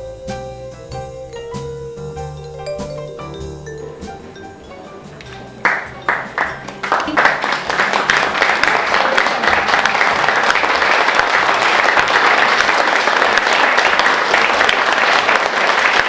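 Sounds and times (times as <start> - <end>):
audience applauding: 5.2 - 16.0.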